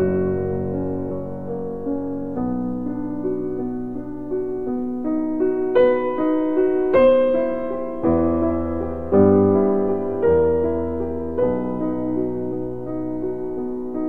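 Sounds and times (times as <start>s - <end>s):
slow piano melody: 0.0s - 14.0s.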